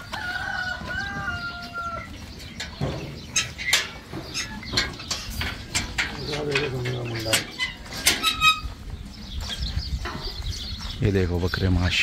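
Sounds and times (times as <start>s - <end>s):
rooster crowing: 0.0s - 2.2s
sharp knocks and clatter: 2.6s - 8.5s.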